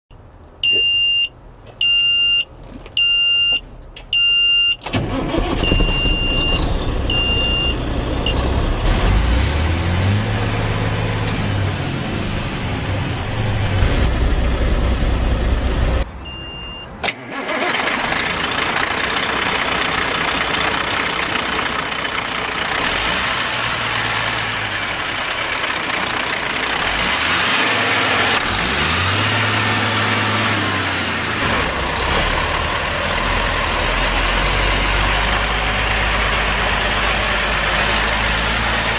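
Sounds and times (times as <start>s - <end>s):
truck warning buzzer beeping: 0.6s - 8.4s, 16.2s - 17.7s
diesel engine cranking and starting: 2.4s - 16.1s, 17.0s - 38.9s
diesel engine idling: 4.9s - 16.4s, 17.3s - 38.9s.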